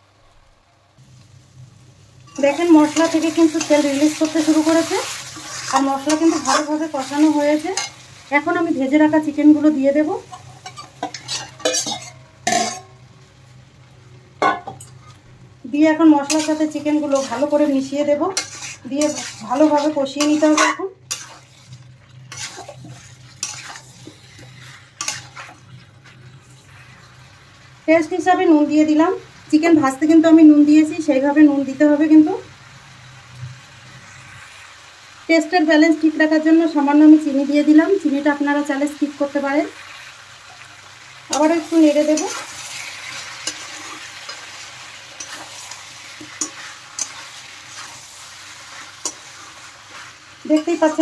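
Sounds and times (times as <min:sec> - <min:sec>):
faint sizzle of frying: 0:00.0 - 0:51.0
metal spatula scraping pan: 0:02.3 - 0:08.0, 0:10.2 - 0:12.9, 0:16.2 - 0:26.9, 0:41.3 - 0:48.0.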